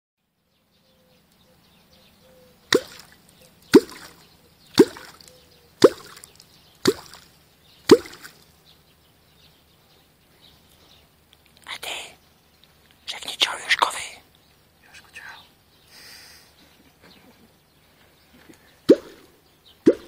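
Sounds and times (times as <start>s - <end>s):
catfish clonk striking water: 2.7s - 7.3s, 7.9s - 8.4s.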